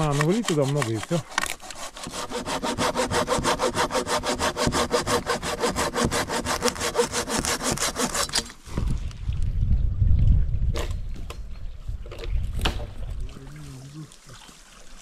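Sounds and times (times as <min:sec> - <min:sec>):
hand saw cutting wood: 0:00.0 - 0:08.6.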